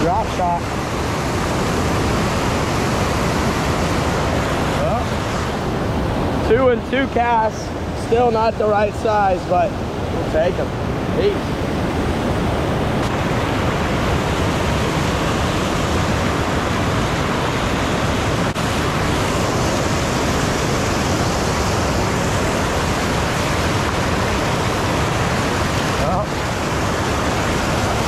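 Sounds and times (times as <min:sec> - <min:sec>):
water rushing over dam: 0:00.0 - 0:28.0.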